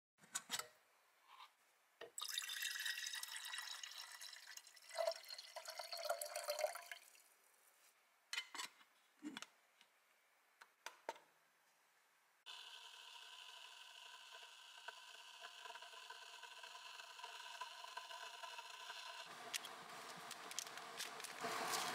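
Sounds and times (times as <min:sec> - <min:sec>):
water pouring into kettle: 0:02.2 - 0:07.3, 0:12.5 - 0:21.9.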